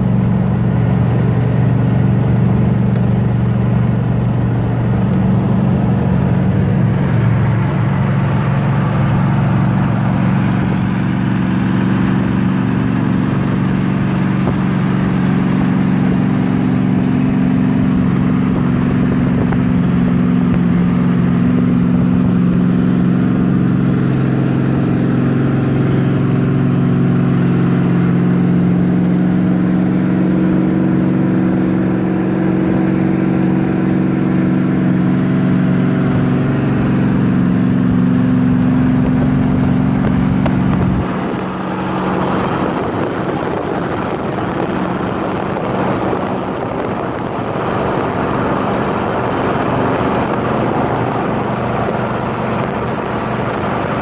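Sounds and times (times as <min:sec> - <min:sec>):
car engine droning: 0:00.0 - 0:54.0
tyre road noise: 0:00.0 - 0:54.0
wind noise: 0:04.7 - 0:22.4, 0:36.0 - 0:54.0.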